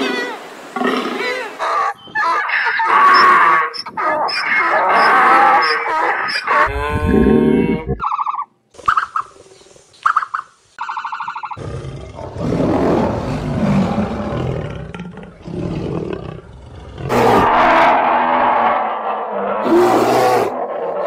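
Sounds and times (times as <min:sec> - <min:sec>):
lion roaring: 0:06.5 - 0:08.0, 0:11.6 - 0:21.0.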